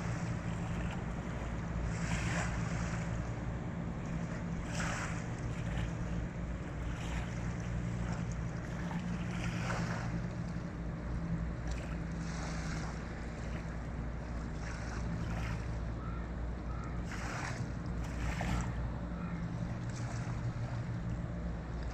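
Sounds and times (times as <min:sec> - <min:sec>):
boat engine drone: 0:00.0 - 0:21.9.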